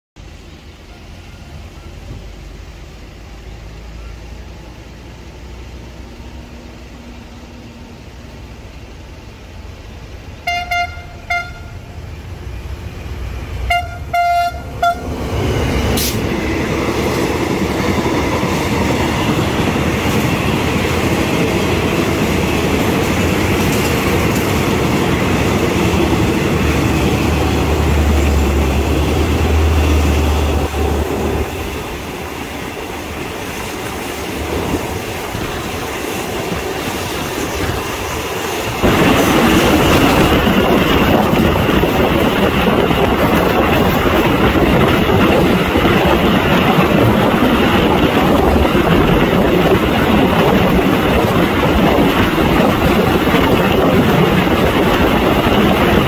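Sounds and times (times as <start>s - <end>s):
train coaches rolling past: 0.2s - 56.0s
diesel train horn toots: 10.4s - 11.9s, 13.6s - 15.2s.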